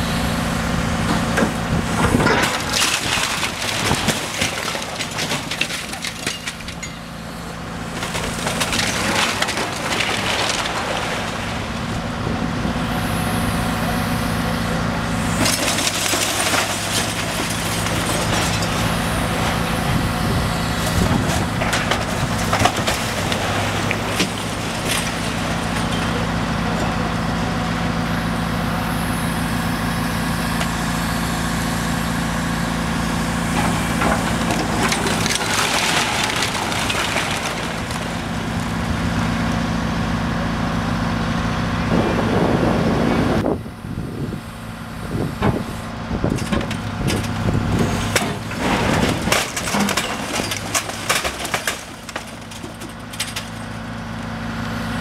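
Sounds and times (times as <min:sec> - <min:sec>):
excavator diesel engine running: 0:00.0 - 0:55.0
bricks and debris crashing: 0:02.0 - 0:07.1, 0:07.9 - 0:12.2, 0:15.3 - 0:27.1, 0:33.5 - 0:39.5, 0:46.3 - 0:53.8.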